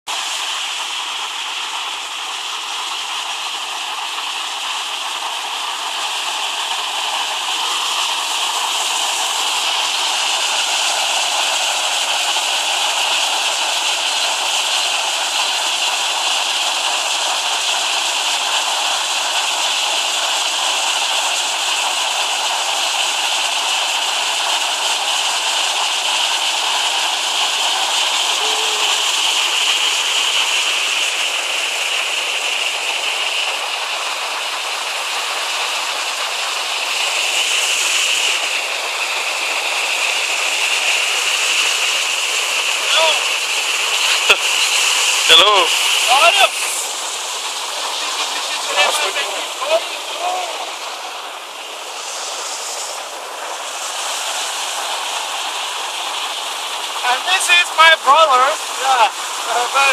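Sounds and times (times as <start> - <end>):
river water rushing over rocks: 25.0 - 59.9.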